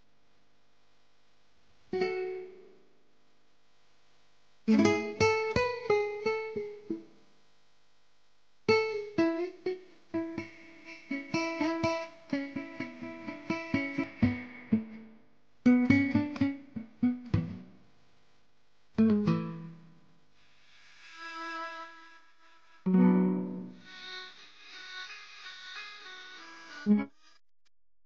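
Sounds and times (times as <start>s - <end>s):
plucked guitar music: 2.0s - 2.6s, 4.7s - 7.1s, 8.7s - 17.8s, 19.0s - 20.0s, 22.9s - 24.4s, 26.9s - 27.1s.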